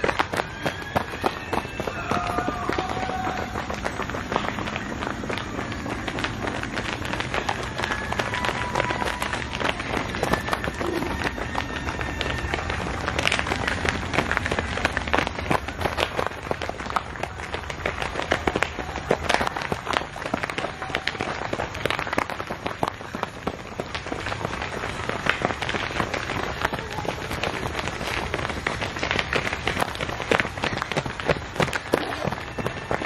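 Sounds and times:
runners' footsteps on dirt: 0.0s - 33.0s.

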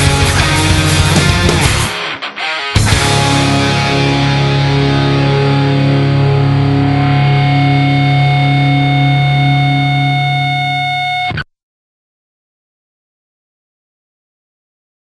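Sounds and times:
distorted electric guitar chord: 0.0s - 11.4s.

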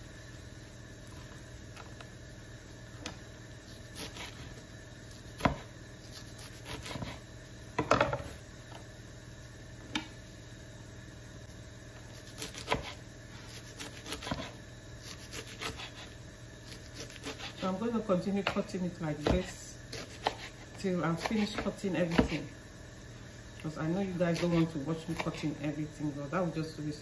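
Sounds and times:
knife chopping on plastic board: 5.4s - 5.7s, 19.2s - 20.5s, 21.2s - 22.4s.

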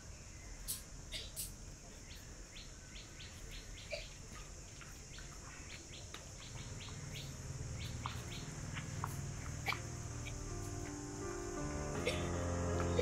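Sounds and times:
small birds chirping: 0.0s - 13.0s
high insect buzz: 0.1s - 13.0s.

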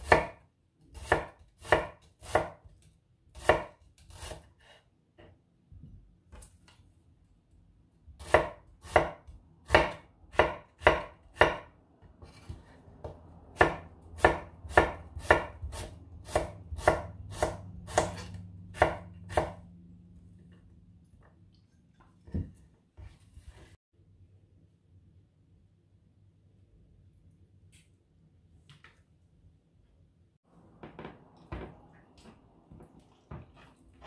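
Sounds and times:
knife chopping on cutting board: 0.0s - 4.7s, 8.1s - 19.6s.

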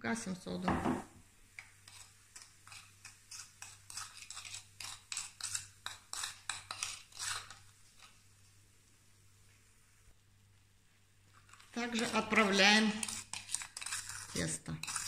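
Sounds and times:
spoon stirring in glass bowl: 1.6s - 8.2s, 11.3s - 15.0s.

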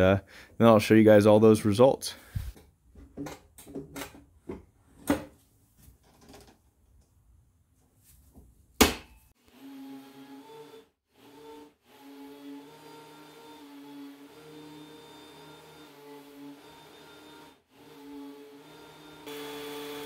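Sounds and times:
planer humming: 18.7s - 20.0s.

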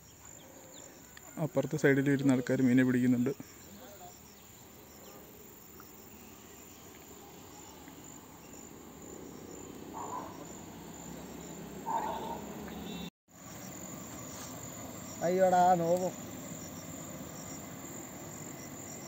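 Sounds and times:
insects chirring: 0.0s - 19.0s.

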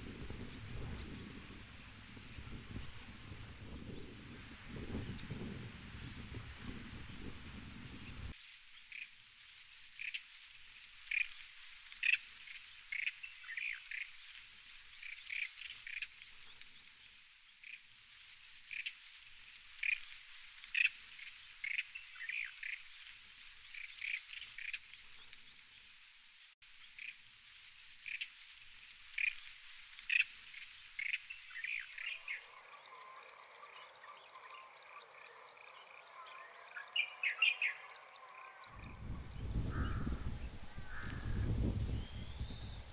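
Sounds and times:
high-pitched insect trill: 0.0s - 42.9s.

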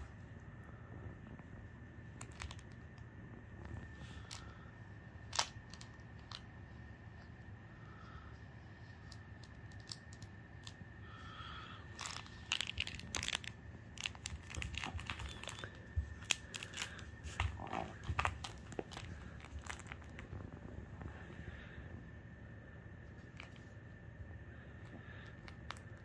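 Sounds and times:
puppy chewing plush toy: 12.0s - 20.6s.

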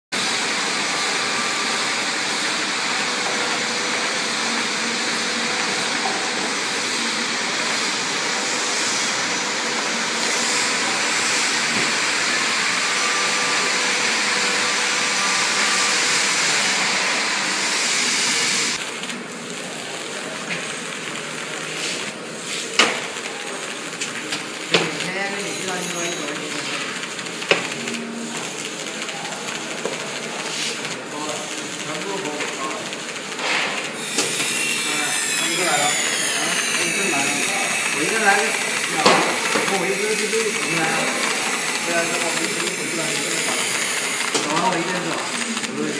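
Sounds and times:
stamping machine whirring hiss: 21.5s - 28.6s, 29.8s - 45.9s
sharp machine clicks: 22.8s - 45.9s.

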